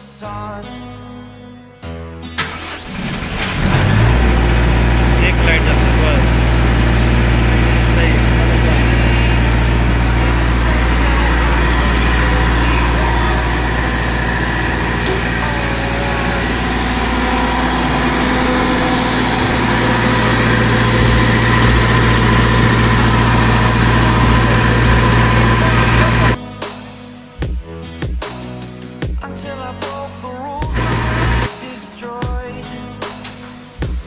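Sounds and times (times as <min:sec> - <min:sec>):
generator diesel engine running: 0:02.4 - 0:26.4, 0:30.8 - 0:31.5.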